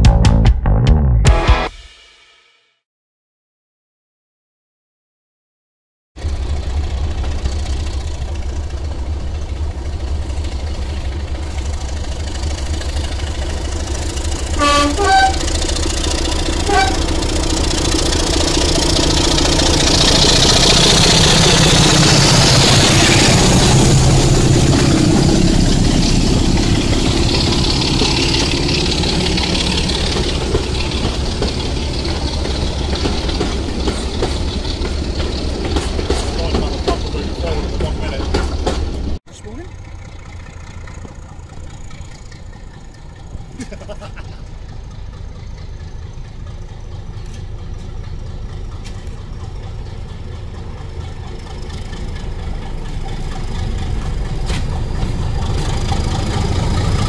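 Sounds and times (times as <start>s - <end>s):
diesel locomotive engine: 6.2s - 57.0s
passing train noise: 6.2s - 57.0s
two-tone train horn: 14.5s - 15.6s, 16.6s - 17.2s.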